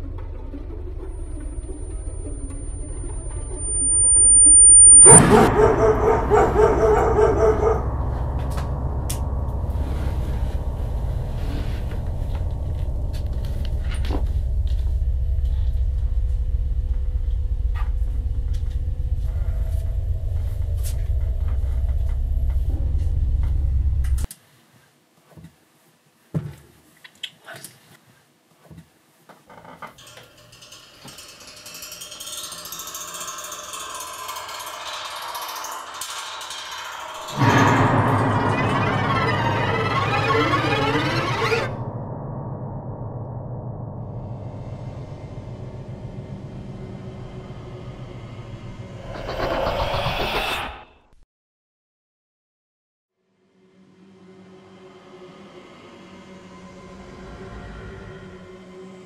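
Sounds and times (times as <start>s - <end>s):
low rumbling drone: 0.0s - 24.3s, 33.2s - 50.8s, 53.6s - 59.0s
hissing swell: 5.8s - 17.1s, 36.9s - 50.9s.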